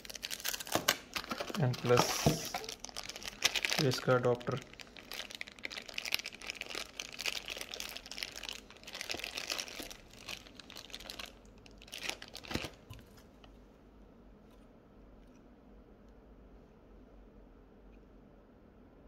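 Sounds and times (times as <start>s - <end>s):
plastic bag crinkling: 0.0s - 13.5s.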